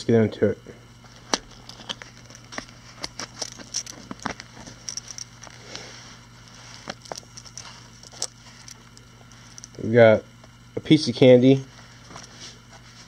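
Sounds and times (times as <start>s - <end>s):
leather pouch handling: 1.1s - 9.8s.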